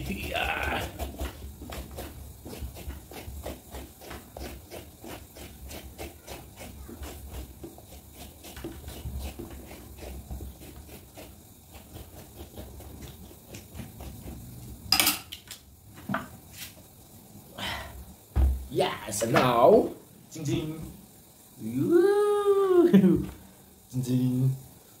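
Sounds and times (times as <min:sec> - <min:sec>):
metal spoon scraping watermelon rind: 0:00.0 - 0:15.1
spoon clattering on tray: 0:14.9 - 0:15.3.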